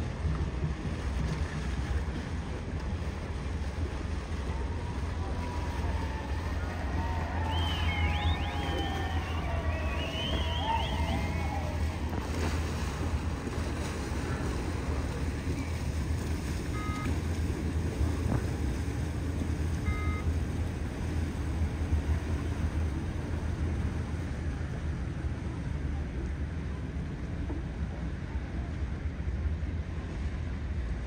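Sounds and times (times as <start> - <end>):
low rumble of waterfront ambience: 0.0 - 31.0
short electronic beeps: 16.8 - 17.1, 19.9 - 20.3.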